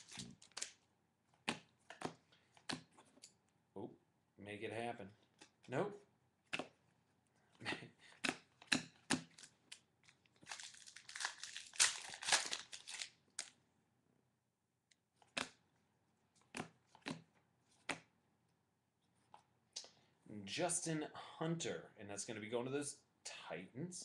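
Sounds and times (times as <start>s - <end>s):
wrapper crinkling and tearing: 0.0s - 0.8s, 9.3s - 13.6s
cards clicking and tapping: 1.4s - 3.2s.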